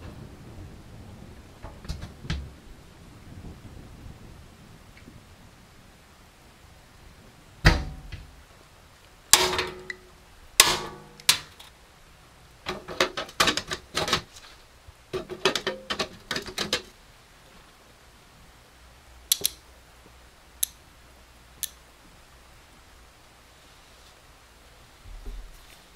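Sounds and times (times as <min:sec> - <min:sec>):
light clicking and tapping: 0:19.3 - 0:19.6.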